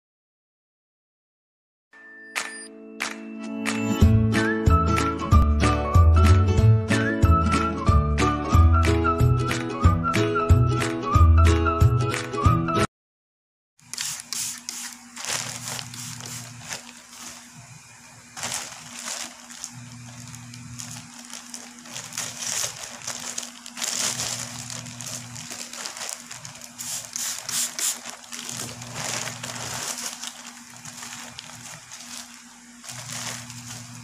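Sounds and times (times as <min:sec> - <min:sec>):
plastic and bubble wrap crinkling: 0:13.8 - 0:34.0.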